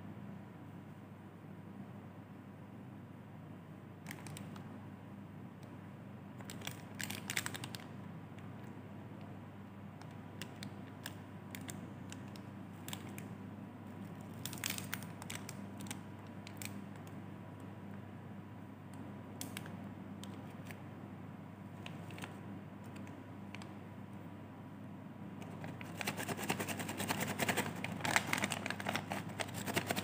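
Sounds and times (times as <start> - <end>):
low steady hum: 0.0 - 30.0
plastic wrappers crinkling: 6.4 - 7.8, 14.1 - 16.7, 25.5 - 30.0.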